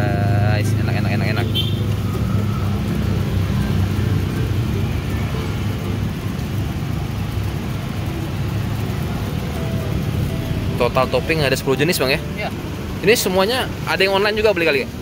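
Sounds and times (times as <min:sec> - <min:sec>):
engine running nearby: 0:00.0 - 0:15.0
road traffic rumble: 0:00.0 - 0:15.0.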